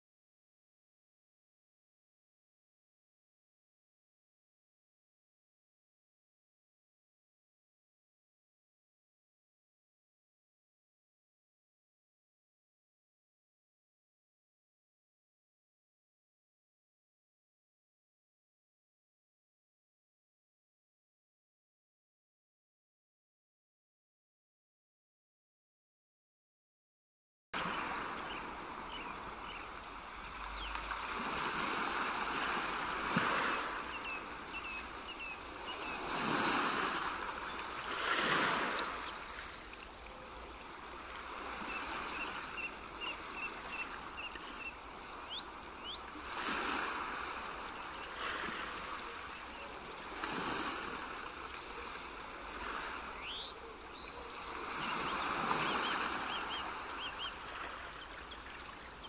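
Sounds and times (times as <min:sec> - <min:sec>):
small birds chirping and trilling: 0:33.9 - 0:39.9, 0:41.7 - 0:46.1, 0:47.7 - 0:59.0.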